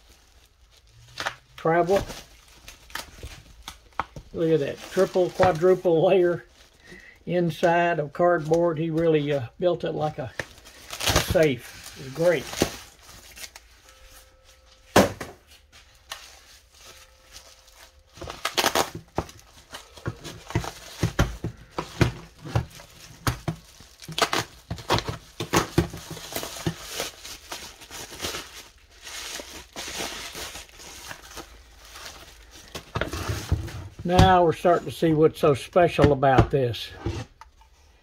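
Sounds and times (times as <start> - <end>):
bubble wrap crinkling: 0.0 - 34.6.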